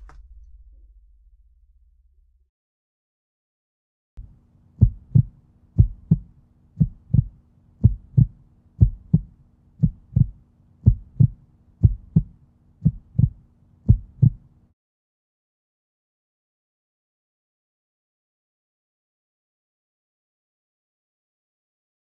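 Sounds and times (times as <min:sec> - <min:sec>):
low steady hum: 0:00.0 - 0:02.5, 0:04.2 - 0:14.7
heartbeat thumps: 0:04.8 - 0:14.4.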